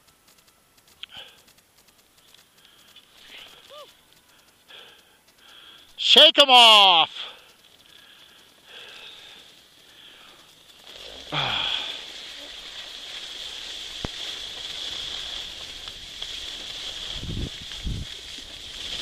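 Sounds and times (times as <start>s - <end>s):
skis scraping over snow: 0.0s - 19.0s
wind buffeting microphone: 16.9s - 18.9s
wind rushing over microphone: 17.0s - 18.2s.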